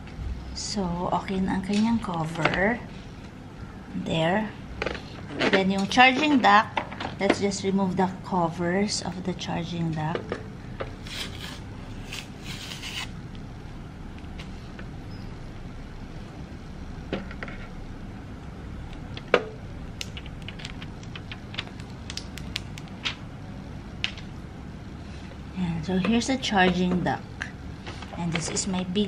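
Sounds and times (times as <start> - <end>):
steady low hum: 0.0 - 29.0
plastic film peeling and crackling: 20.0 - 23.2.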